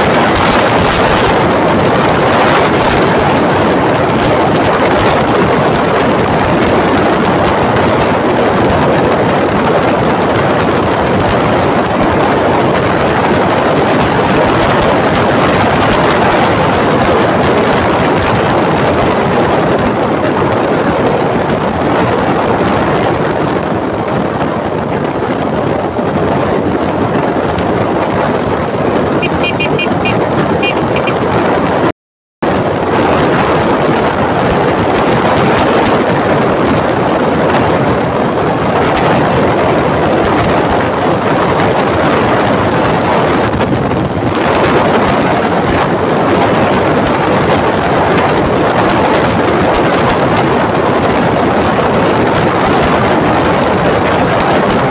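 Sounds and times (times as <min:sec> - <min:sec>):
motorcycle engine and road noise: 0:00.0 - 0:54.9
wind rushing over microphone: 0:00.0 - 0:54.9.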